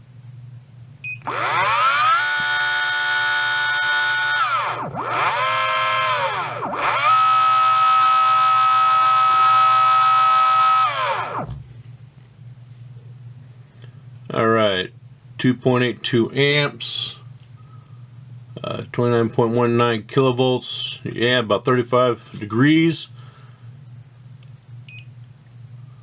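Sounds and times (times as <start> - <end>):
electric motor high whine: 1.2 - 11.6.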